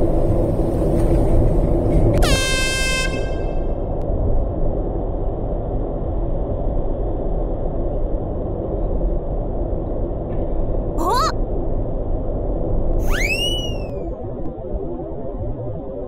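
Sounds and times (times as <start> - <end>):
car road and engine noise: 0.0 - 4.4
warbling bird call: 13.0 - 14.0.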